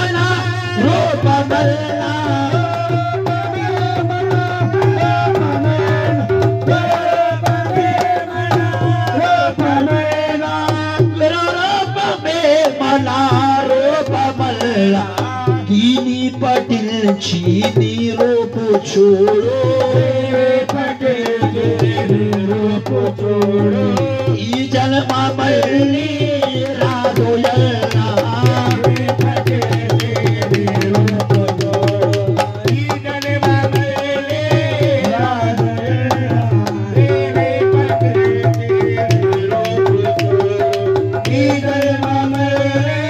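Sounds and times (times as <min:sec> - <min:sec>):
person singing into microphone: 0:00.0 - 0:43.0
rhythmic percussion strikes: 0:00.0 - 0:43.0.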